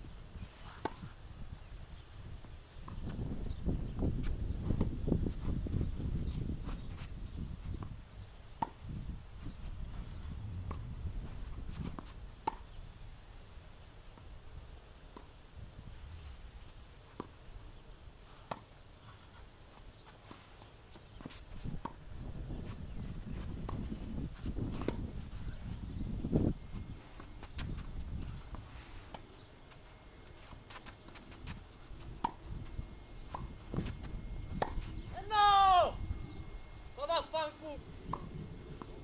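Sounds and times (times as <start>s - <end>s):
low steady rumble: 3.1s - 14.9s
tennis ball struck by racket: 24.7s - 25.1s, 32.2s - 32.4s, 34.6s - 34.9s.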